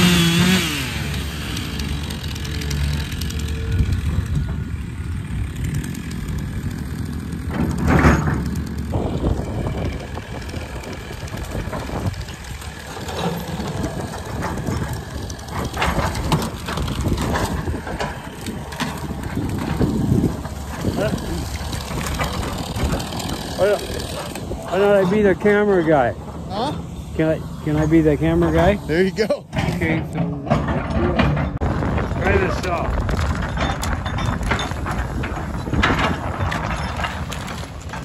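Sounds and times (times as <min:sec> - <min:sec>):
excavator diesel engine running: 0:00.0 - 0:38.0
metallic clanks and knocks: 0:07.4 - 0:08.8, 0:29.5 - 0:31.7, 0:32.3 - 0:38.0.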